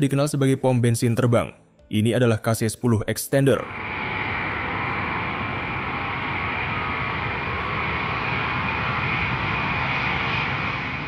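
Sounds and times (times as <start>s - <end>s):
jet engines at takeoff thrust: 3.6s - 11.0s.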